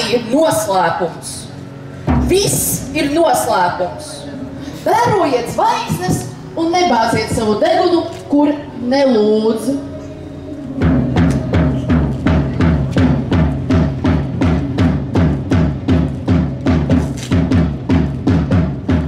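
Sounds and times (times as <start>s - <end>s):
drums playing a fast beat: 10.8s - 19.0s.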